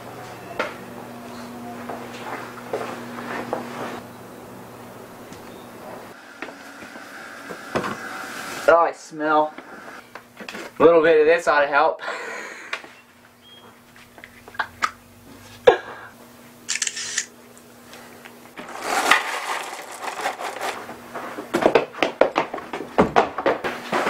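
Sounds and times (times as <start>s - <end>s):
clattering footsteps: 1.8s - 3.8s, 18.6s - 24.0s
dry cereal pouring into a bowl: 18.6s - 20.9s.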